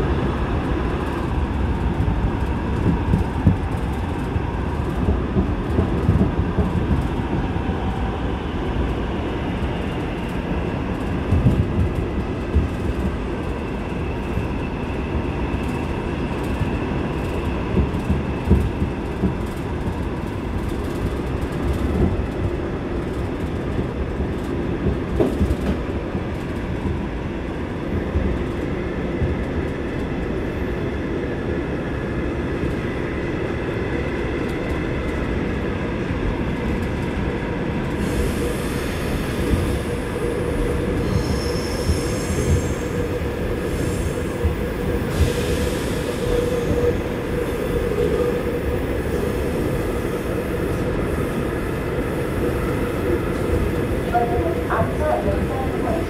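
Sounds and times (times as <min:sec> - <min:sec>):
rumble of wheels on rail: 0:00.0 - 0:56.0
train clicks: 0:00.6 - 0:07.9, 0:08.7 - 0:13.6, 0:15.6 - 0:30.4, 0:39.3 - 0:48.4.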